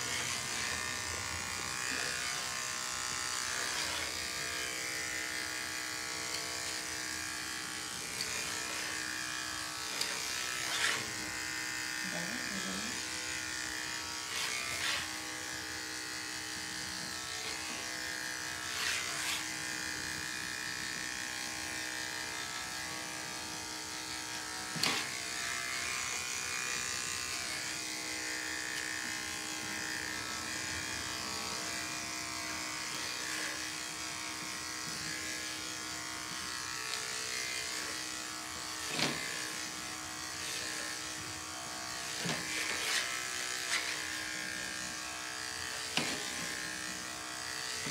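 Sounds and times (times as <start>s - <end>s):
electric hair clippers buzzing: 0.0s - 47.9s.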